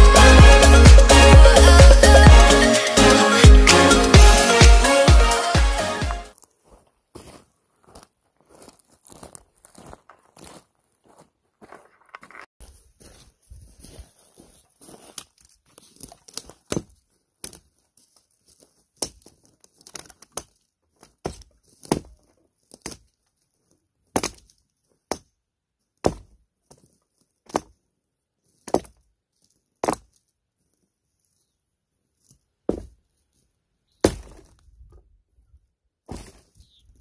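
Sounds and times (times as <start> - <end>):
hatchet chopping a log: 21.2 - 22.1, 24.2 - 24.4, 26.0 - 26.3, 34.0 - 34.5.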